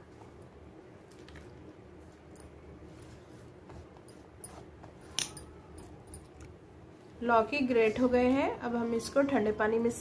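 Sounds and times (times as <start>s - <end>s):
soft handling sounds: 0.0s - 8.3s.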